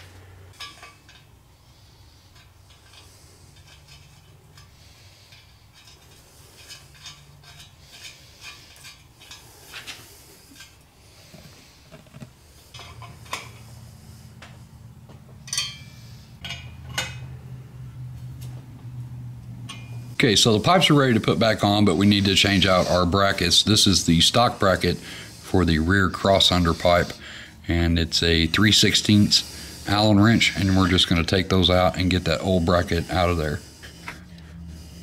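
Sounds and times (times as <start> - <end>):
low hum: 12.7 - 35.0
metal clinks and taps: 14.4 - 17.3, 19.6 - 20.0.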